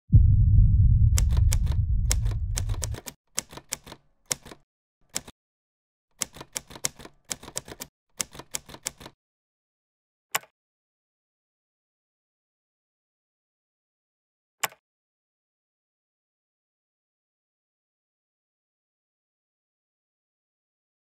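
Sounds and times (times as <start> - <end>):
deep low rumble: 0.0 - 3.0
keyboard keystrokes clicking: 1.2 - 5.3, 6.2 - 9.2.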